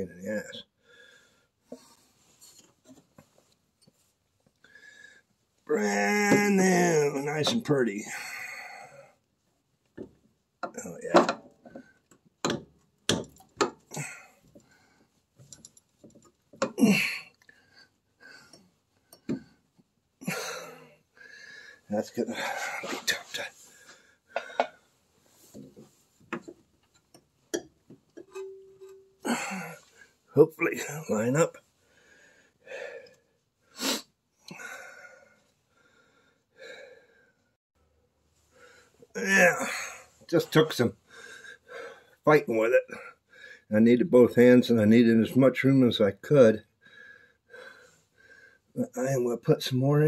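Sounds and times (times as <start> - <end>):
man exhaling and grunting: 13.9 - 14.4, 16.7 - 17.3, 20.2 - 20.9, 29.2 - 29.9.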